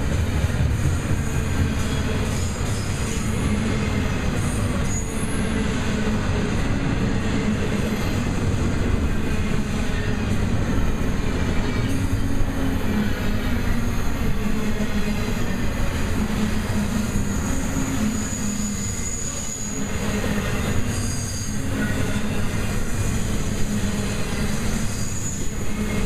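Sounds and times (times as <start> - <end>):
train wheels rumbling on rail: 0.0 - 26.0
high wheel squeals: 9.4 - 26.0.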